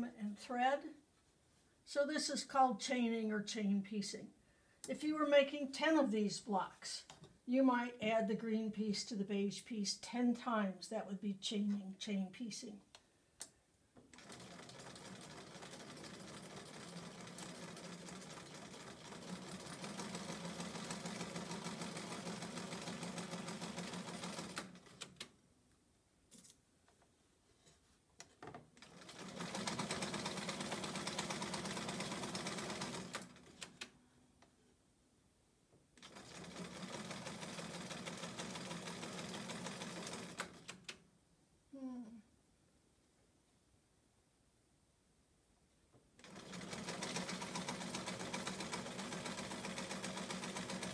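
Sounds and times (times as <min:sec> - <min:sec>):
sewing machine stitching: 0:14.1 - 0:25.3, 0:28.8 - 0:33.9, 0:36.0 - 0:41.0, 0:46.2 - 0:50.9.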